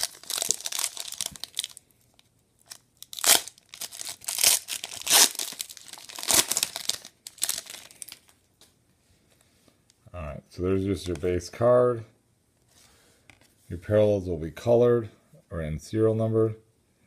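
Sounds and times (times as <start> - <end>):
foil wrapper crinkling: 0.0 - 1.9, 2.6 - 8.3.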